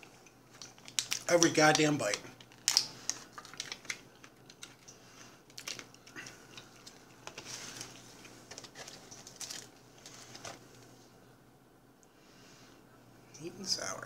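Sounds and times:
condiment packets crinkling: 0.0s - 10.6s.

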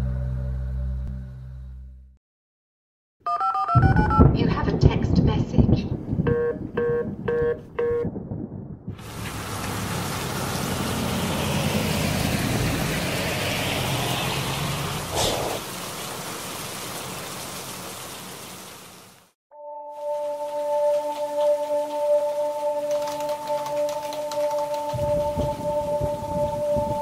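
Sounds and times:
short electronic beeps: 3.3s - 4.3s
low rumble: 3.8s - 13.0s
heavy rain: 9.0s - 19.4s, 20.0s - 27.0s
sharp crack: 15.1s - 15.7s.

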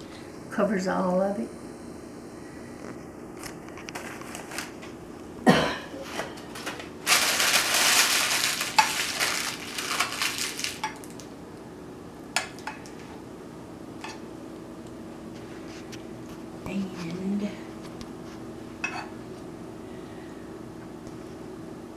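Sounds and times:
plastic bag crinkling: 3.8s - 4.8s, 6.6s - 11.3s.

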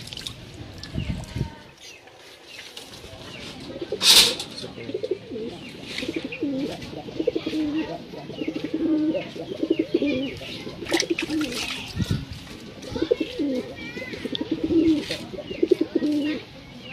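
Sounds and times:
pigeons cooing: 3.5s - 16.5s.

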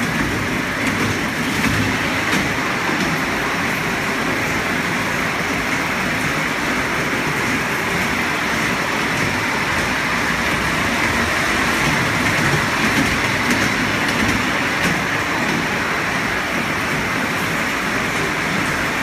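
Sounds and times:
amusement train running on track: 0.0s - 19.0s.

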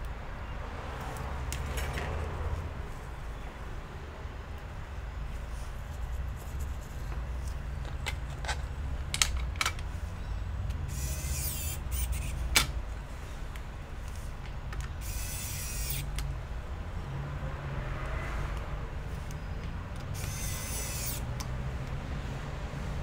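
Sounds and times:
electric screwdriver whirring: 10.9s - 12.4s, 15.0s - 16.1s, 20.2s - 21.3s.

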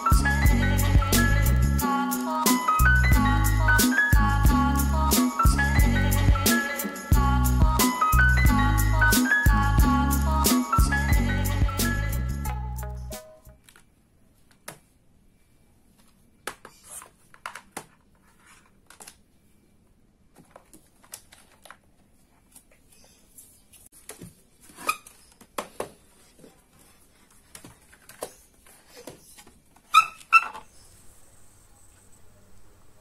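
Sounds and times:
short high squeaks: 29.9s - 30.8s.

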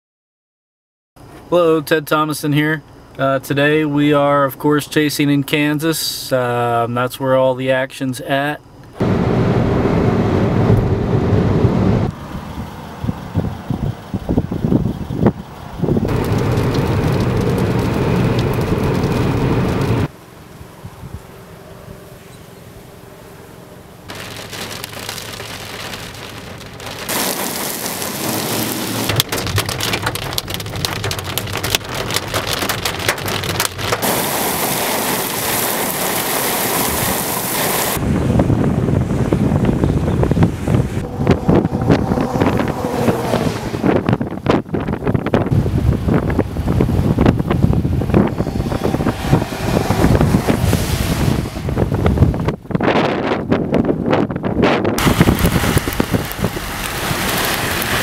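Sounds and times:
heavy rain pelting down: 9.0s - 14.6s, 16.0s - 20.1s, 24.1s - 38.0s, 40.7s - 52.8s, 55.0s - 58.0s
wind buffeting microphone: 9.0s - 20.1s, 37.9s - 58.0s.

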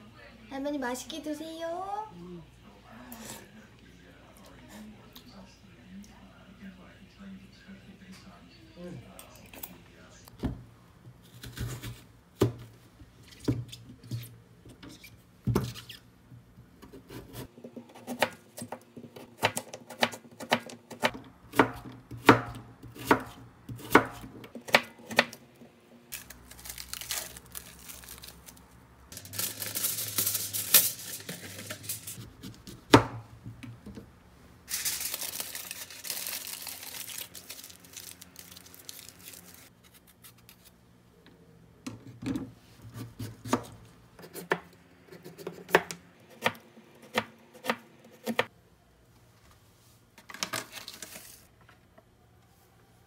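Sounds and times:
knife chopping on cutting board: 17.0s - 25.4s, 42.9s - 48.5s
plastic wrap and foil crinkling: 26.1s - 32.2s, 34.7s - 40.7s, 50.4s - 51.5s.

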